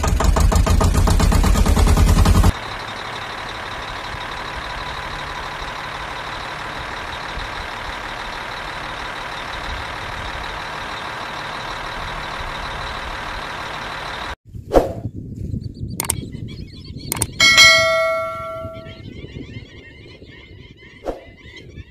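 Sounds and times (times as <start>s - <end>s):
truck engine idling: 0.0s - 14.4s.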